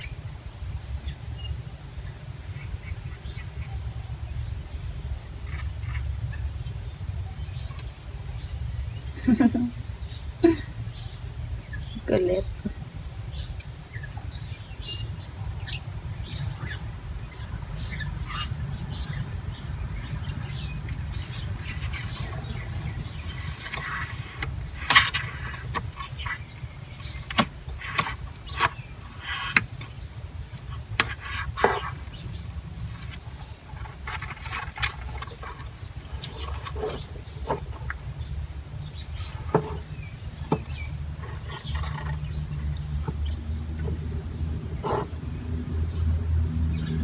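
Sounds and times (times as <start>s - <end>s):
sharp clicks and knocks: 27.0s - 30.0s.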